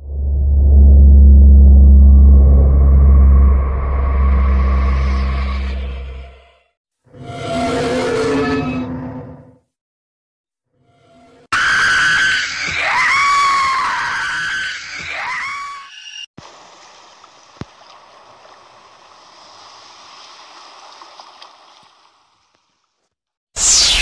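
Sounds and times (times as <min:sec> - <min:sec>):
shrieking scream: 0:04.0 - 0:06.4, 0:07.2 - 0:09.2, 0:11.5 - 0:16.3
rushing water: 0:16.4 - 0:22.8.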